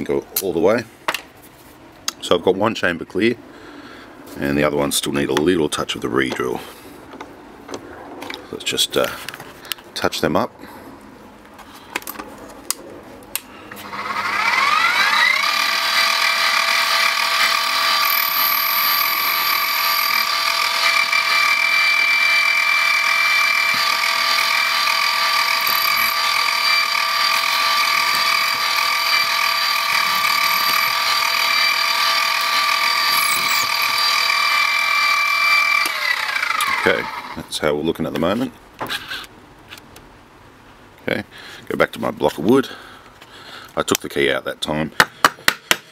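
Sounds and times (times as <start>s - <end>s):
drill press motor whining: 13.7s - 37.4s.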